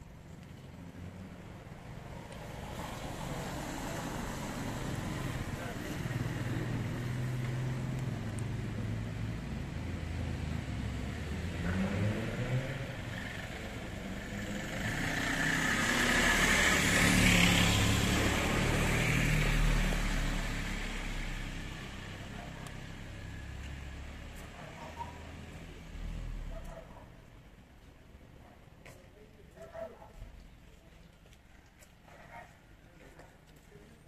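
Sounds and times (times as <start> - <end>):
vehicle passing: 0.8 - 27.2.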